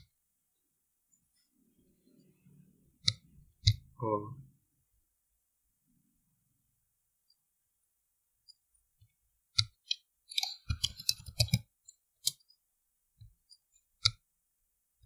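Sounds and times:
keyboard typing: 9.6 - 12.4.

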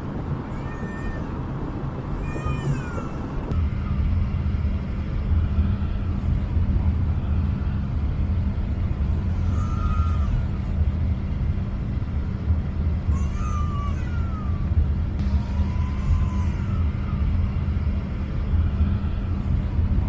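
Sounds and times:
jet engine hum in cabin: 0.0 - 20.0.

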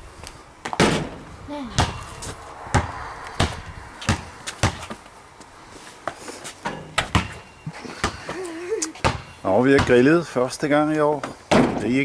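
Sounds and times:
basketball bouncing on pavement: 0.6 - 5.2, 6.0 - 8.4, 9.0 - 10.3, 11.2 - 11.9.

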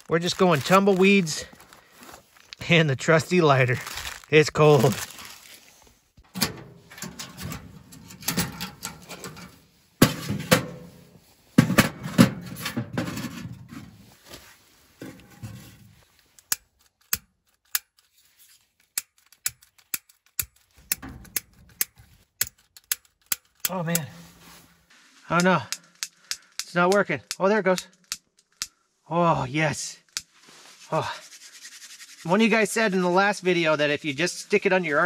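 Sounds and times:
wood stove knocks and scrapes: 6.2 - 14.2, 15.0 - 16.0.

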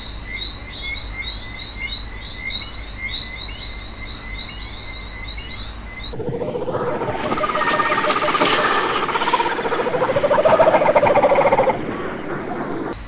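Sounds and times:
short chirping calls: 6.1 - 13.0
thin steady high whine: 6.1 - 13.0.

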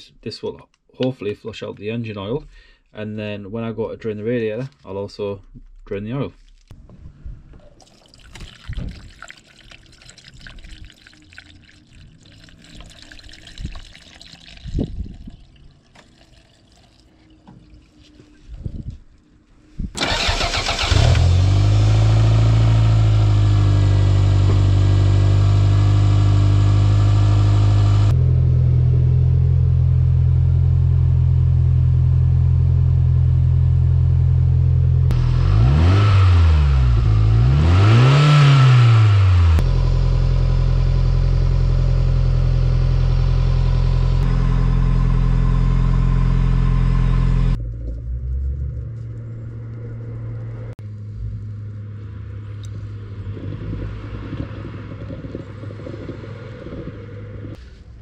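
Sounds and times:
car engine cranking: 20.0 - 23.8
car engine revving: 20.0 - 30.0, 34.9 - 54.7
car engine idling: 20.0 - 35.9, 39.5 - 51.8.

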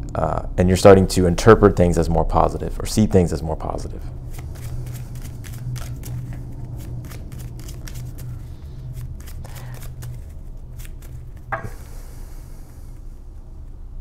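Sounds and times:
low steady hum: 0.0 - 14.0
cards being shuffled: 4.2 - 11.6.

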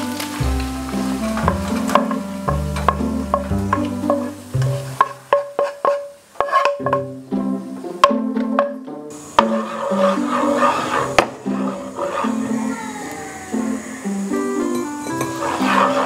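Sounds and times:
background music with bass line: 0.0 - 5.2.

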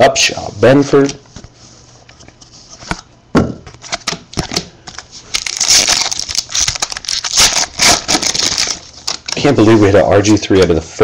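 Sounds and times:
foil wrapper crinkling: 3.9 - 9.7.

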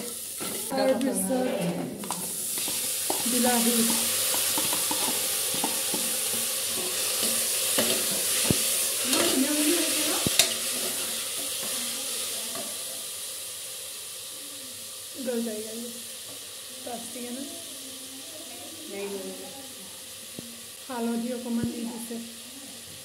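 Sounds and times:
onions sizzling in a pan: 0.0 - 23.0
spoon stirring and scraping: 0.4 - 0.7, 1.5 - 9.4
spoon tapping on pan: 2.0 - 9.3, 10.2 - 11.0.

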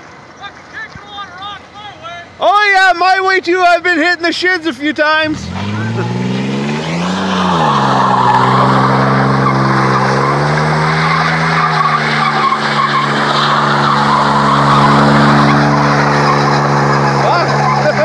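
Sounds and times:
tires screeching: 0.0 - 18.0
engine at high revs: 5.0 - 18.0.

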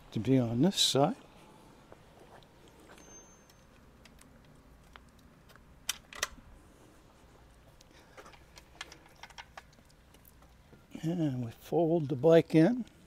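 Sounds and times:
folding bike clicks: 3.4 - 6.4, 8.2 - 10.2.

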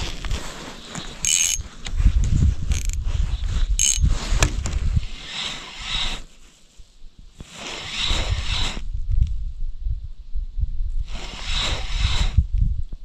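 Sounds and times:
fishing reel gears whirring: 1.2 - 1.6, 2.7 - 3.0, 3.8 - 4.1.

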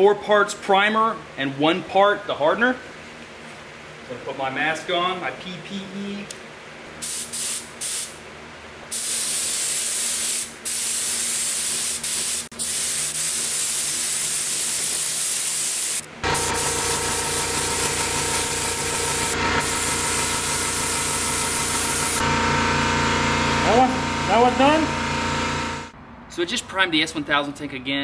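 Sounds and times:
spray gun hissing: 7.0 - 8.2, 8.9 - 22.2
steady motor hum: 16.1 - 26.0.

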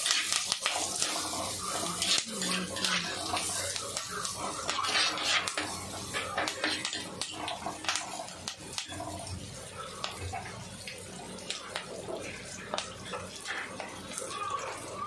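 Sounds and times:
vegetables sizzling in hot oil: 0.0 - 15.0
metal spatula scraping clay pot: 4.7 - 7.0.

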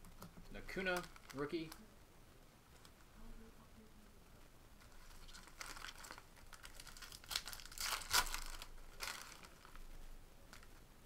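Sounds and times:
foil wrapper crinkling and tearing: 0.8 - 1.8, 4.8 - 9.9.

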